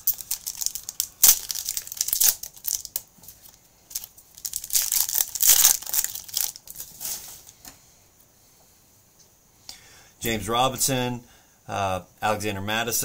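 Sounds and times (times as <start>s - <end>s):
plastic wrapper tearing and crinkling: 0.0s - 7.5s.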